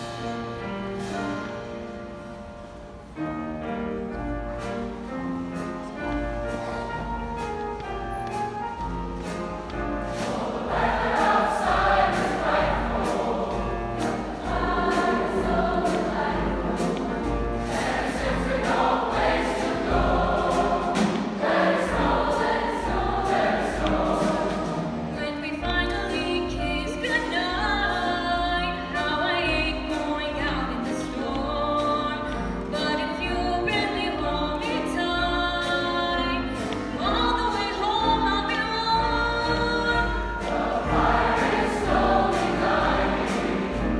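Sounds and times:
piano accompaniment: 0.0s - 43.9s
large choir singing: 8.6s - 25.3s, 36.4s - 43.9s.

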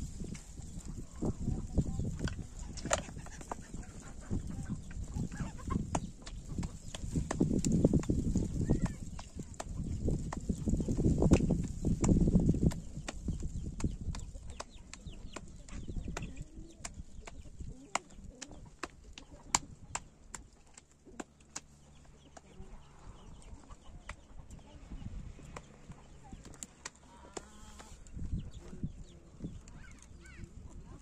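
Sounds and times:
chickens clucking softly: 0.6s - 7.0s, 21.8s - 31.0s.

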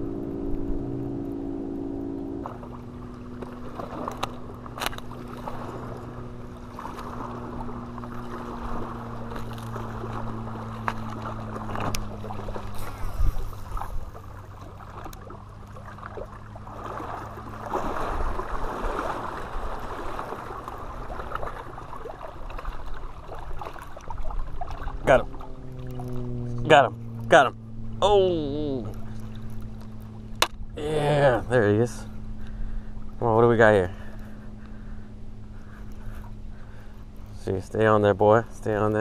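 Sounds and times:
distant engine humming: 0.0s - 39.0s
rough rustle: 8.2s - 14.4s.

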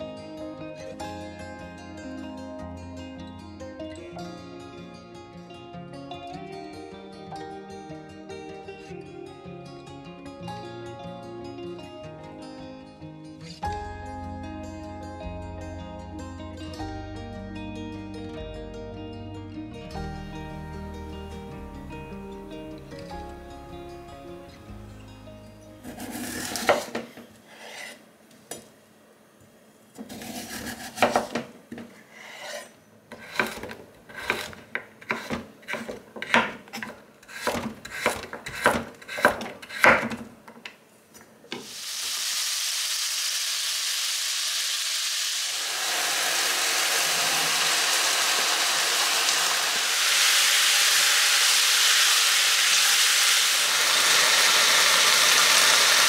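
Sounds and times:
knife slicing on wooden board: 25.9s - 26.9s, 30.0s - 31.4s, 32.1s - 40.1s
vegetables sizzling in a pan: 41.5s - 56.0s.

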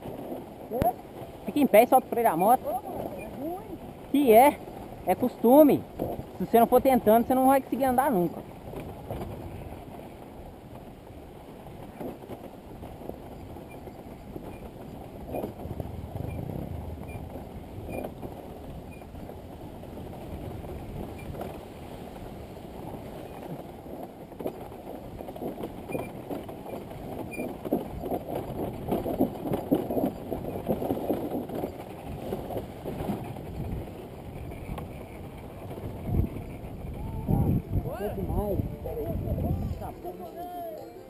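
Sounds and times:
wind on microphone: 0.0s - 41.0s
bike knocking and rattling: 22.8s - 40.6s
dirt bike rumbling: 27.9s - 40.6s.

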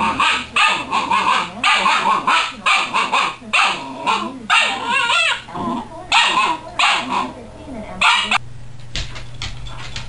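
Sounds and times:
puppy barking and yapping: 0.0s - 5.5s, 6.1s - 7.3s, 8.0s - 8.4s
puppy wavering yelp: 0.2s - 5.5s, 8.0s - 8.4s.

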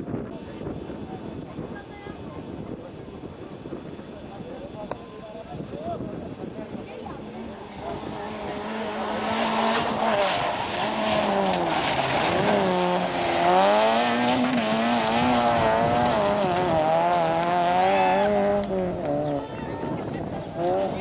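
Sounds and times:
rally car engine revving: 7.2s - 21.0s.

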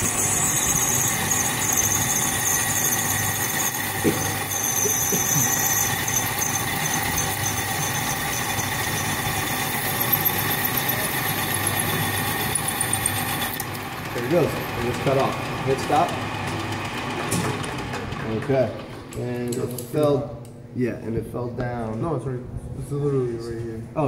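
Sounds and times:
high-pitched cutting squeal: 0.0s - 15.3s
lathe humming: 0.0s - 19.1s.

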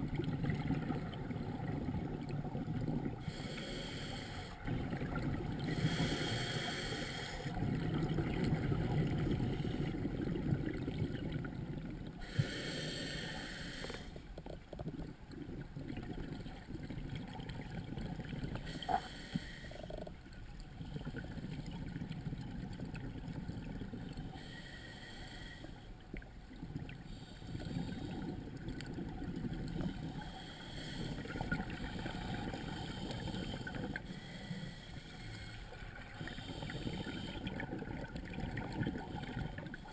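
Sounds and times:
exhaled bubbles rushing: 0.0s - 3.2s, 4.6s - 5.8s, 7.5s - 12.2s, 35.7s - 39.9s
regulator inhale hiss: 3.2s - 4.6s, 5.7s - 7.6s, 12.2s - 14.3s, 18.6s - 19.9s, 24.3s - 26.0s, 27.1s - 28.3s, 29.8s - 37.7s.

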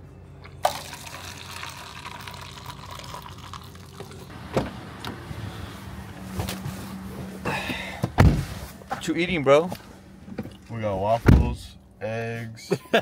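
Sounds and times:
coffee pouring into paper cup: 0.6s - 4.3s.

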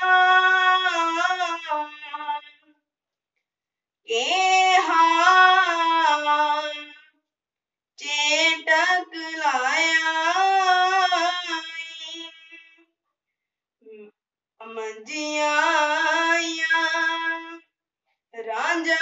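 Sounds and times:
boy singing a hymn: 0.0s - 2.6s, 4.1s - 7.0s, 8.0s - 12.7s, 14.7s - 17.6s, 18.4s - 19.0s.

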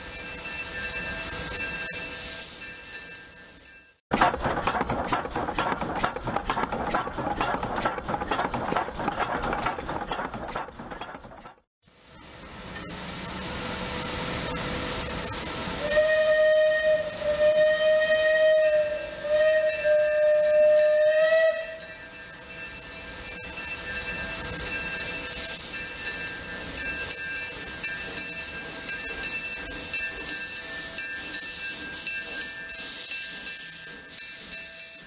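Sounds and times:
steam hissing: 0.0s - 4.0s, 11.9s - 35.0s
steam locomotive whistle: 14.2s - 22.0s.

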